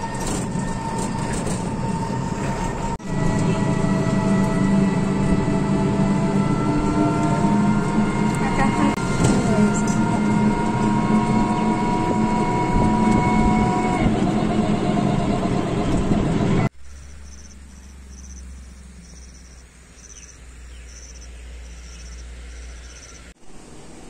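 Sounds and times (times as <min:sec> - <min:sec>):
low hum: 0:00.0 - 0:24.0
vehicle engine and road noise: 0:00.0 - 0:24.0
insect chirps: 0:16.8 - 0:24.0.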